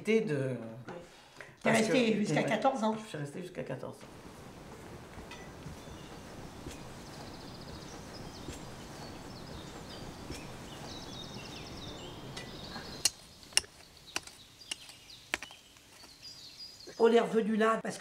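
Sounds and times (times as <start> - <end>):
outdoor background hiss: 0.0 - 18.0
birds chirping: 4.0 - 17.8
trowel striking soil: 5.2 - 7.3, 10.3 - 10.9, 12.4 - 16.2.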